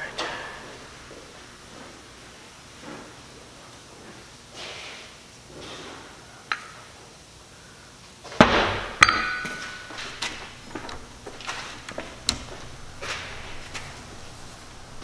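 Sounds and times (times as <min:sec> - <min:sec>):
metallic hit ringing: 0:00.0 - 0:01.6
metal clinks: 0:09.0 - 0:15.0.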